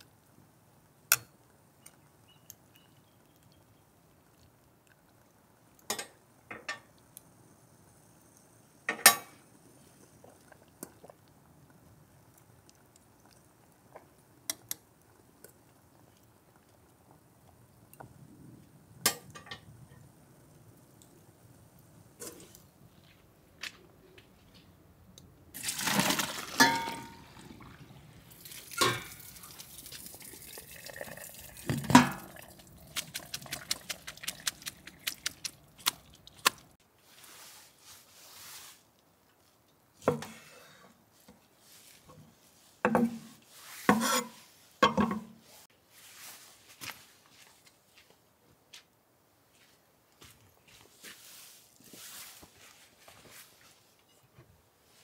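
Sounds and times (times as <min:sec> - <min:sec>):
water pouring into colander: 0:25.6 - 0:36.1
water dripping: 0:25.6 - 0:36.8
dishes being set down: 0:26.6 - 0:27.2, 0:44.8 - 0:45.4.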